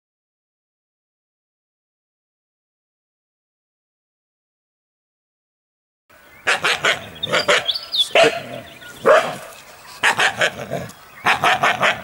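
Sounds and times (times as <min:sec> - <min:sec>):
dog barking aggressively: 0:06.4 - 0:12.0.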